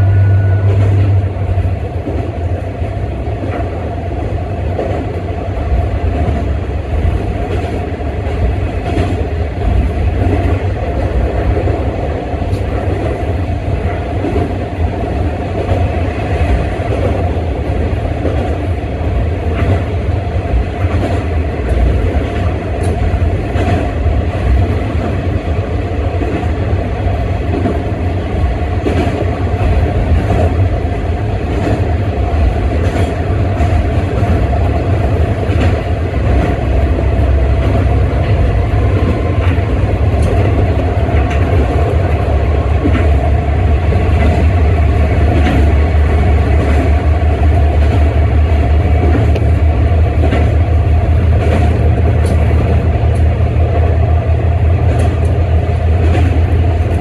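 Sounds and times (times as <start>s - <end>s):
diesel railcar engine drone: 0.0s - 57.0s
wheels clicking over rails: 27.4s - 57.0s.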